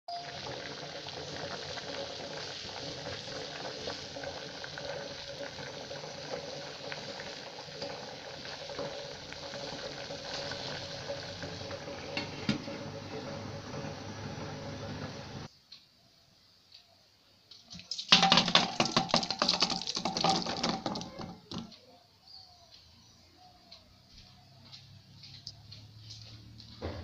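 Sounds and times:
food bubbling and crackling in pan: 0.1 - 15.5, 17.7 - 21.7.

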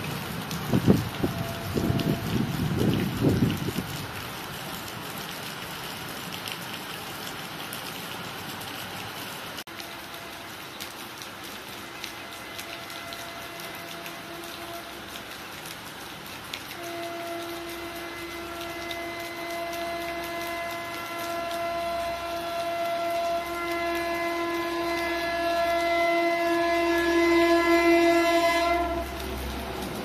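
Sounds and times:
locomotive air horn blast: 1.2 - 2.5, 11.9 - 15.1, 16.7 - 29.6.

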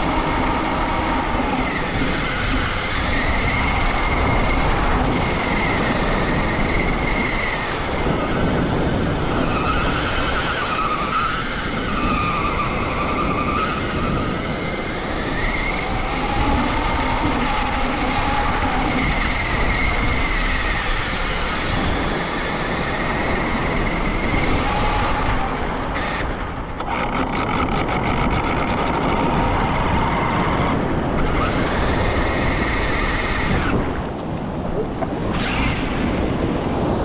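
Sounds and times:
toy truck motor whining: 0.0 - 34.0
wind noise: 0.0 - 37.0
water noise: 22.5 - 37.0.

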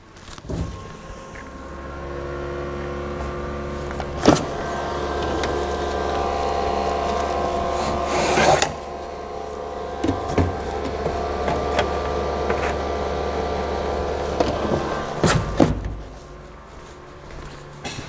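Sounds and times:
steady machine hum: 0.0 - 18.0
knocks and clunks: 2.8 - 16.4.

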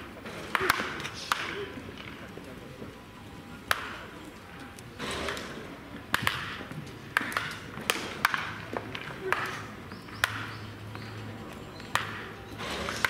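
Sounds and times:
wooden bat hitting balls: 0.0 - 2.3, 3.6 - 4.2, 5.0 - 13.0.

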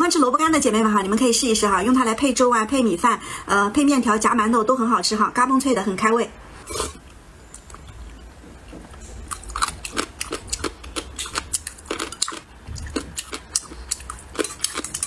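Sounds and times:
crunchy chewing: 8.9 - 15.0.

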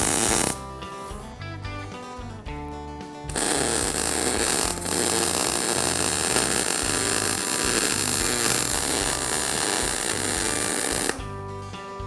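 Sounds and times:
welding arc crackling and hissing: 0.0 - 0.6, 3.3 - 11.2.

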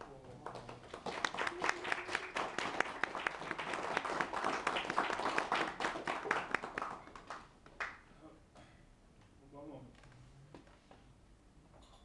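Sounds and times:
audience clapping: 0.0 - 8.0.

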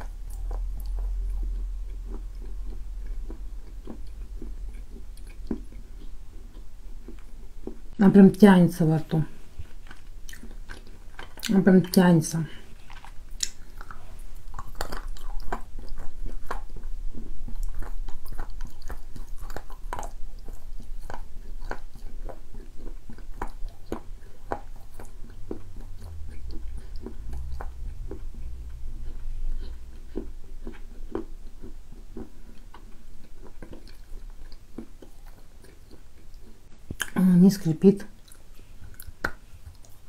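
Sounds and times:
low rumble: 0.0 - 7.6, 24.7 - 31.6
person chewing sticky mouth sounds: 0.0 - 40.0
small mouth clicks: 13.4 - 14.0.

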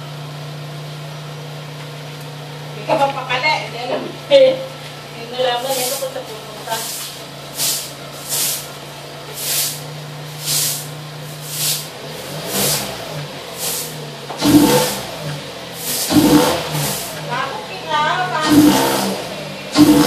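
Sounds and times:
car engine idling and revving: 0.0 - 20.0
short hiss: 6.8 - 8.7, 9.3 - 11.9, 15.8 - 17.1.

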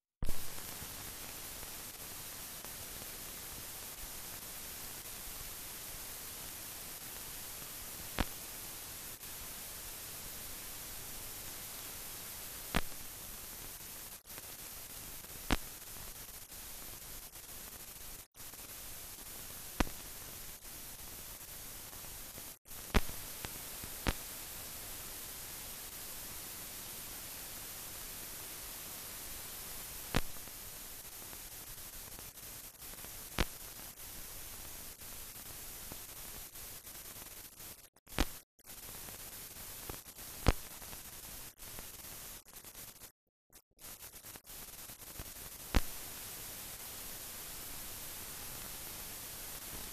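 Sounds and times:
film soundtrack hiss: 0.2 - 43.1, 43.8 - 49.9.

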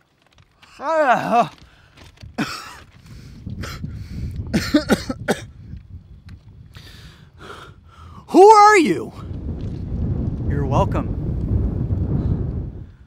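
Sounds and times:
man coughing and sputtering: 2.4 - 2.8, 4.5 - 5.5
man breathing: 3.0 - 4.4, 6.7 - 8.3.

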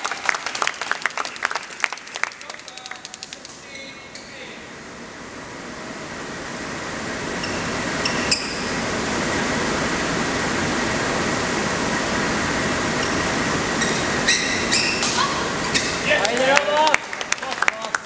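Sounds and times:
crowd hum in sports hall: 0.0 - 18.0
court shoes squeaking: 7.3 - 8.8, 13.0 - 16.1.

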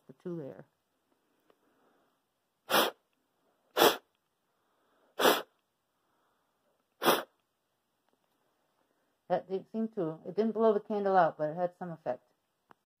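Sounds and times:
sharp puffs of breath: 1.6 - 7.4.

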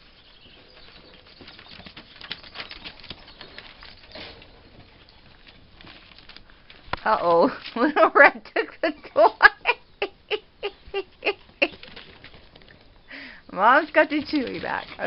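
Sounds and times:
patter of small paws: 0.0 - 7.9, 11.3 - 15.0
paper rustling and crinkling: 1.5 - 7.8.

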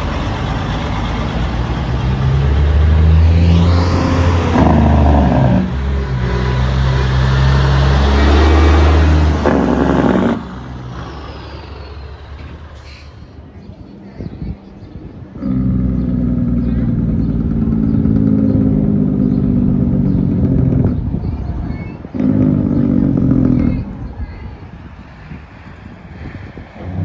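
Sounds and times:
diesel truck engines passing: 0.0 - 27.0
street noise: 0.0 - 27.0.

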